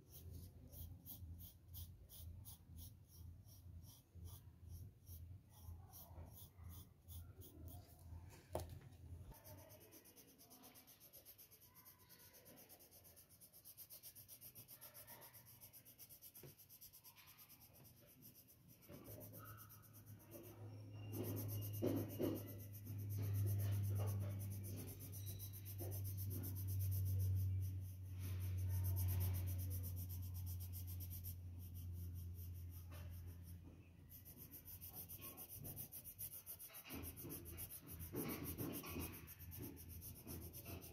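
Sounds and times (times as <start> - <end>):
pencil scratching on paper: 0.0 - 40.9
low steady hum: 19.4 - 36.3.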